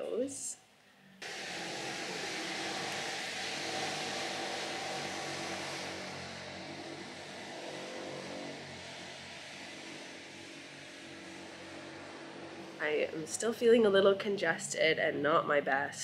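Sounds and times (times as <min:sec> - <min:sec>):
vehicle engine running: 0:01.2 - 0:13.4.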